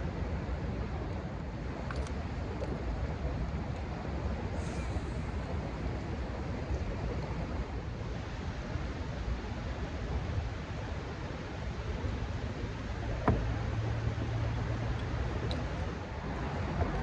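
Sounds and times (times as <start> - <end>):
fast river current: 0.0 - 17.0
wind: 0.0 - 17.0.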